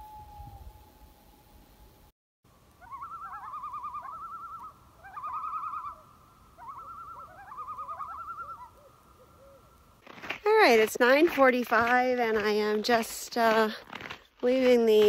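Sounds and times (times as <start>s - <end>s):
held whistle-like note: 0.0s - 1.9s
rapid wavering bird call: 2.8s - 9.8s.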